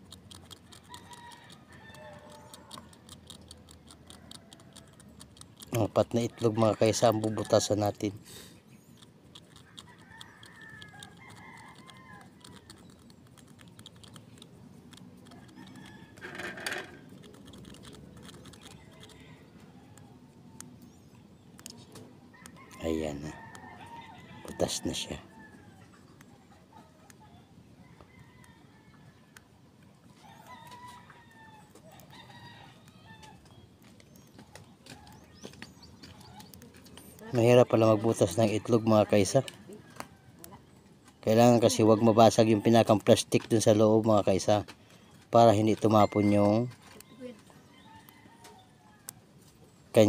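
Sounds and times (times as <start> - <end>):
needle clicking on eggshell: 0.0 - 8.1, 9.0 - 19.2
chickens calling: 0.0 - 50.0
rooster crowing faintly: 0.5 - 3.1.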